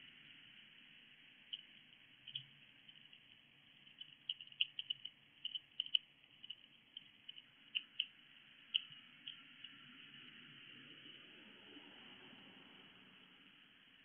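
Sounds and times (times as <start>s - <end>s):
hedgehog crunching dry food: 1.5s - 9.4s.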